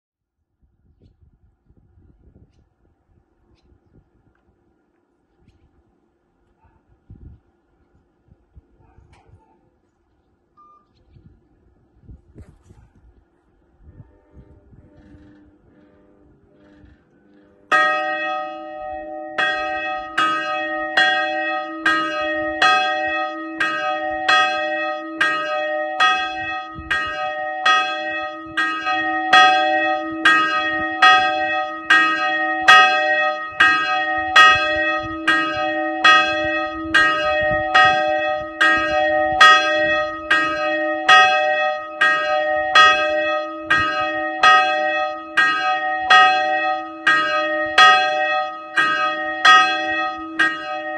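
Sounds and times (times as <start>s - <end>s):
steady low hum: 0.7s - 19.4s.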